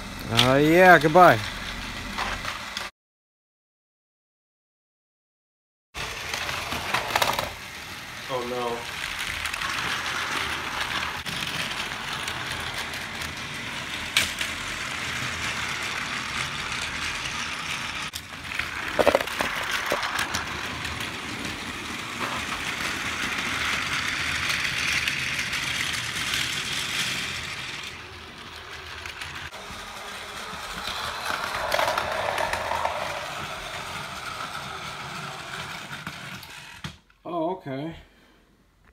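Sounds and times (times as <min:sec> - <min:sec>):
toy train motor whirring: 0:06.0 - 0:37.0
wheels rattling over track joints: 0:08.3 - 0:36.5.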